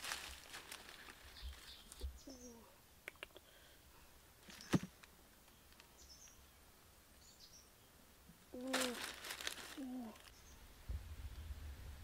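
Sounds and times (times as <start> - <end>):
faint bird chirps: 1.3 - 3.3
person humming: 8.5 - 9.1, 9.7 - 10.3.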